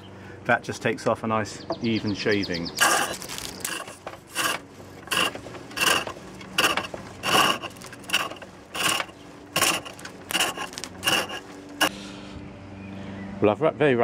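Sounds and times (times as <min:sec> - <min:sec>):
chisel rasping on spinning wood: 0:02.8 - 0:11.9.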